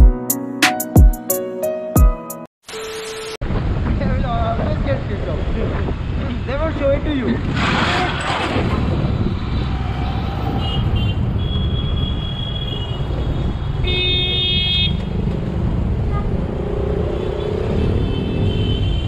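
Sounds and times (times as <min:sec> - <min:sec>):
traffic engines rumbling: 0:03.4 - 0:19.0
car horns honking: 0:10.5 - 0:15.1, 0:17.1 - 0:19.0.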